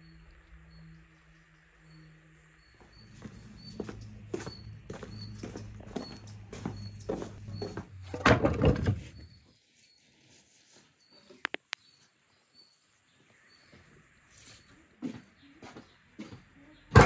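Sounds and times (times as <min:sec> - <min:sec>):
small bird chirping: 0:00.0 - 0:07.9
firewood logs clattering: 0:08.0 - 0:09.2.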